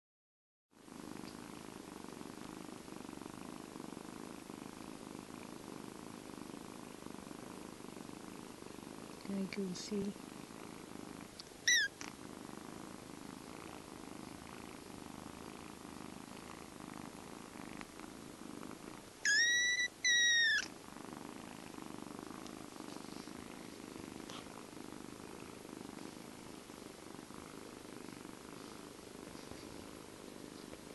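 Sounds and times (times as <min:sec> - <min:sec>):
kitten purring: 0:00.8 - 0:30.9
kitten mewing: 0:11.6 - 0:12.0, 0:19.2 - 0:20.7.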